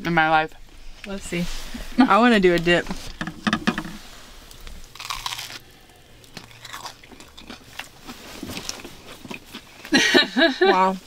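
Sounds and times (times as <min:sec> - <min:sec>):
biting and chewing sandwich: 0:04.5 - 0:10.0.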